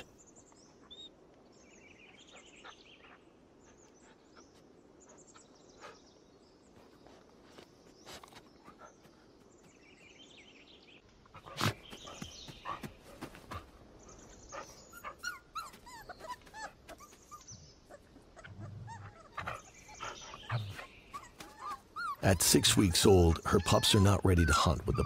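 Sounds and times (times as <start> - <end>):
wolf pups whimpering and yelping: 14.2 - 25.0.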